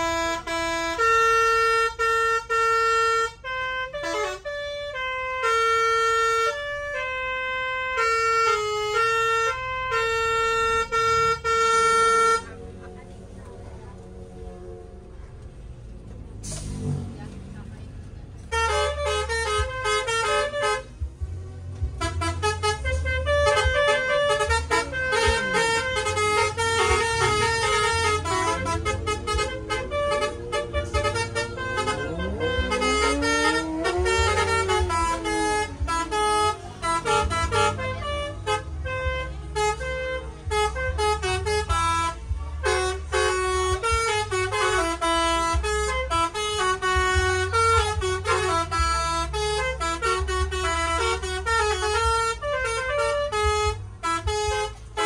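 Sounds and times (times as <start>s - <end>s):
multi-tone bus horn melody: 0.0s - 55.0s
low rumble: 24.6s - 38.3s.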